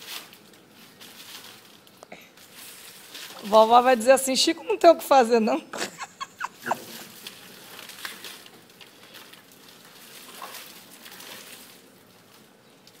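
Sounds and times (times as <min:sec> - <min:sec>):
palm fronds rustling and crackling: 0:00.0 - 0:04.8, 0:06.2 - 0:13.0.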